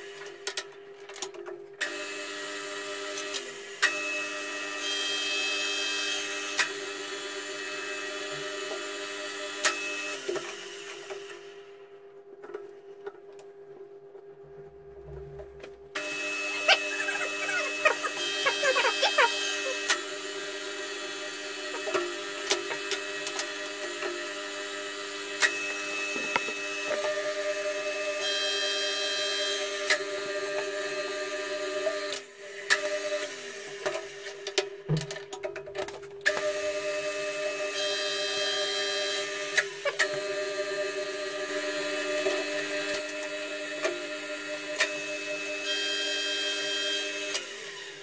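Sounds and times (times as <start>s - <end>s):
milling machine humming: 15.0s - 35.1s.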